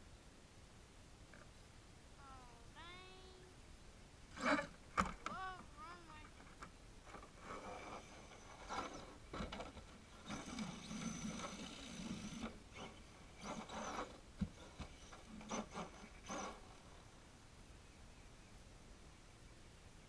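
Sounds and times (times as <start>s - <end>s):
tyres scrabbling on loose dirt: 6.3s - 17.1s
toy truck motor whining: 7.4s - 17.0s.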